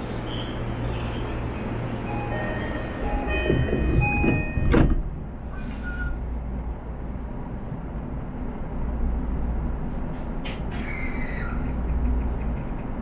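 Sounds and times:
electric train rumble: 0.0 - 13.0
electronic door chime: 2.1 - 4.8
train doors thumping shut: 3.0 - 5.2, 10.0 - 12.6.

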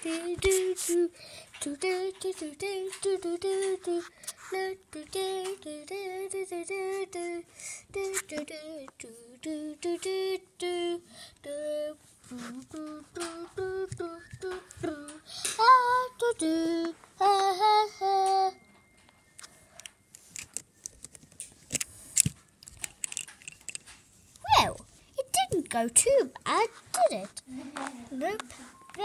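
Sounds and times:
high voice singing wordless tune: 0.0 - 18.6.

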